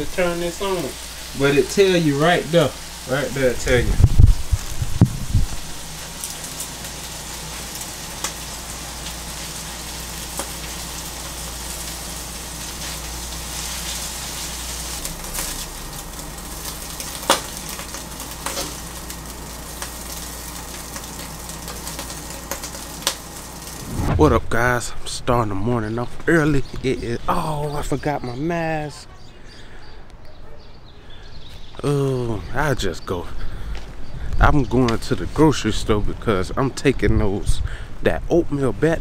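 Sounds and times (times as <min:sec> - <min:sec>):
food sizzling in a wok: 0:00.0 - 0:24.0.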